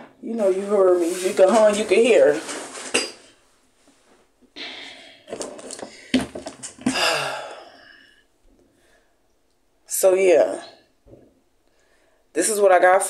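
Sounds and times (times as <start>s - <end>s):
person exhaling hard: 4.6s - 5.3s, 6.8s - 8.2s.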